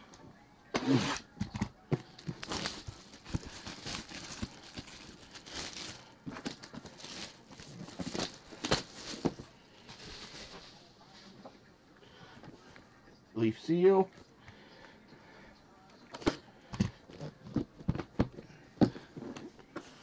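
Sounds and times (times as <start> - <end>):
plastic wrap crinkling and tearing: 2.1 - 10.8.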